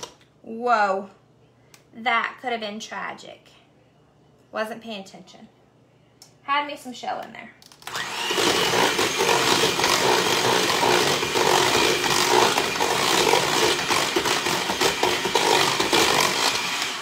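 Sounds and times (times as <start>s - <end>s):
electric mixer running: 7.8s - 17.0s.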